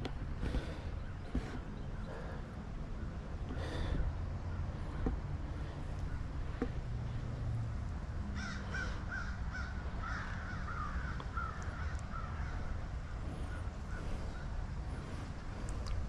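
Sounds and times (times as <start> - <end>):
bird calling: 0.0 - 5.0, 8.3 - 15.3.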